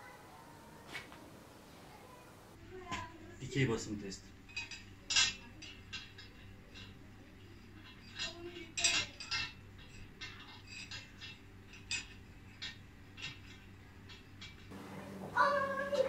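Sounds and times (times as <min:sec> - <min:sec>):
metallic clinks and ticks: 0:04.4 - 0:14.7.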